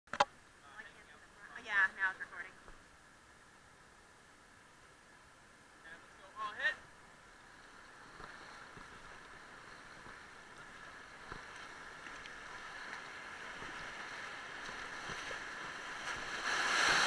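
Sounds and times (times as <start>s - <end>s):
whitewater rushing: 6.4s - 17.0s.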